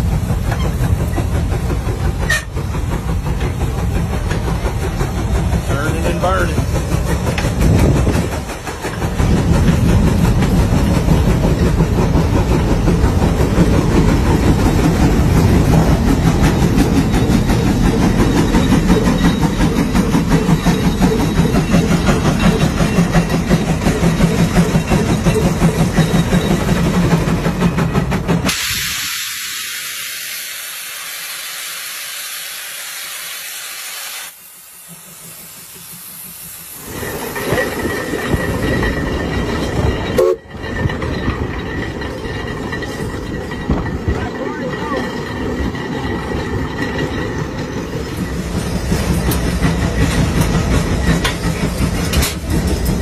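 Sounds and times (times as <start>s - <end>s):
steady hiss of steam: 0.0s - 38.7s
steam traction engine running: 0.0s - 53.0s.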